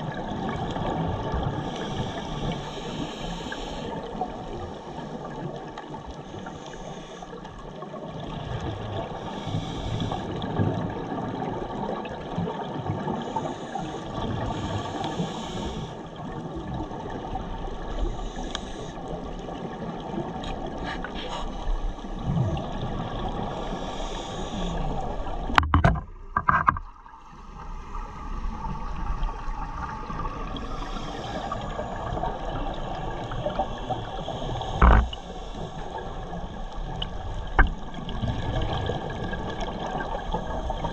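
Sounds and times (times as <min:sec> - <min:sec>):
underwater rushing hiss: 0:01.5 - 0:05.2, 0:06.2 - 0:07.4, 0:09.2 - 0:10.4, 0:13.1 - 0:16.0, 0:17.9 - 0:19.2, 0:20.6 - 0:25.6, 0:27.3 - 0:37.6.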